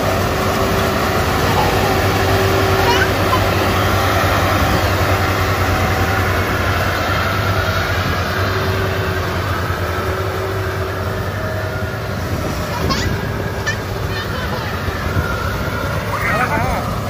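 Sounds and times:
combine harvester running: 0:00.0 - 0:17.0.

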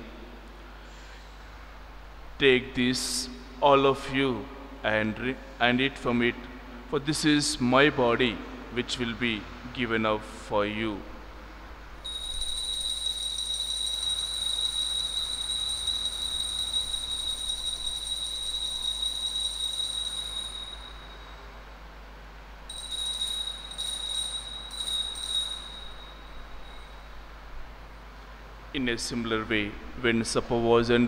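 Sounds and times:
altar bells jingling: 0:12.1 - 0:21.4, 0:22.7 - 0:27.1.

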